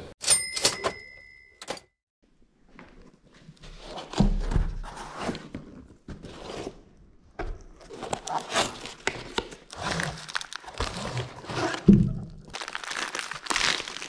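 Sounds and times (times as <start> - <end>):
cardboard boxes rustling and scraping: 3.4 - 7.0, 7.7 - 12.0.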